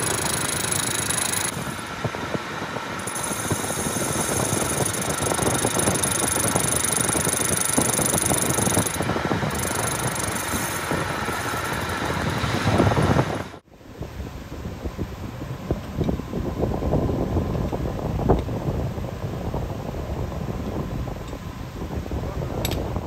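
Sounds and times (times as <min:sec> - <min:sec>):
crackle of metal cutting: 0:00.0 - 0:01.9
metal lathe hum: 0:00.0 - 0:02.0, 0:02.9 - 0:13.2
high steady whine: 0:00.0 - 0:23.0.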